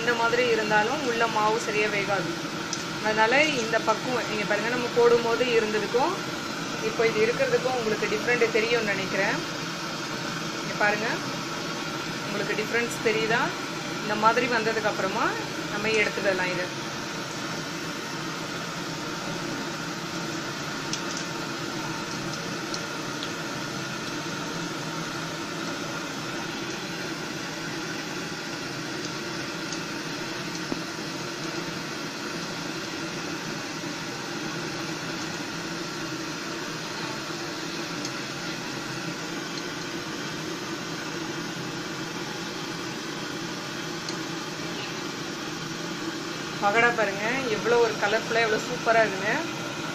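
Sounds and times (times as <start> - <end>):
deep-frying sizzle: 0.0 - 49.9.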